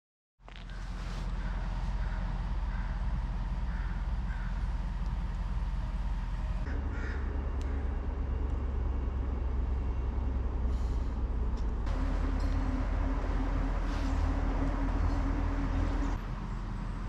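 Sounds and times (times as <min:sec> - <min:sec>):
steady low rumble: 0:00.5 - 0:17.0
faint bird calls: 0:00.6 - 0:05.0, 0:06.7 - 0:08.2.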